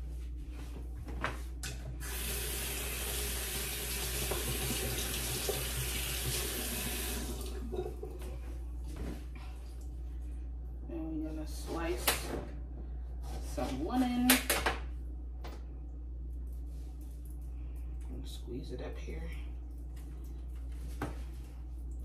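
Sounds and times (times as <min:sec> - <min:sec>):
tap water running: 0:02.0 - 0:08.3.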